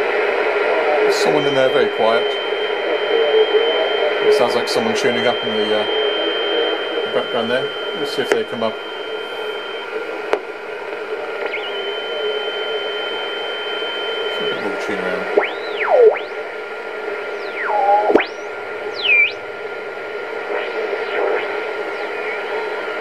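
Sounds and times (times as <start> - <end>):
radio band hiss: 0.0 - 23.0
faint steady tone: 0.9 - 10.3, 11.0 - 23.0
radio whistles sweeping in pitch: 11.4 - 23.0.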